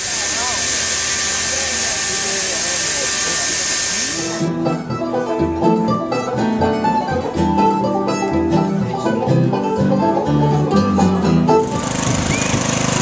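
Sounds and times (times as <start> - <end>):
bluegrass band playing: 4.1 - 13.0
strummed acoustic guitar: 4.2 - 13.0
plucked upright double bass: 4.4 - 13.0.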